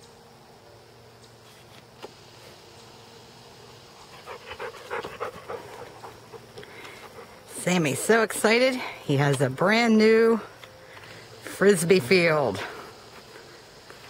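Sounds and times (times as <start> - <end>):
dog panting: 4.0 - 7.6.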